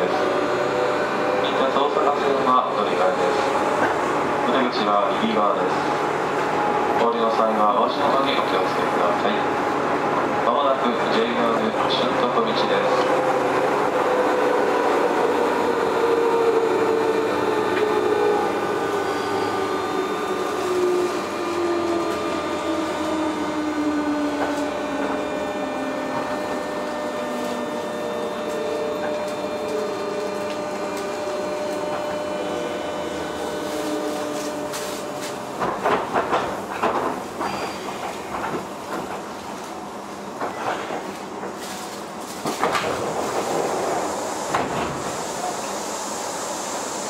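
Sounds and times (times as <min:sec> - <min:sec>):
wheels rumbling on rail: 0:00.0 - 0:47.0
train motor whine: 0:10.2 - 0:39.6.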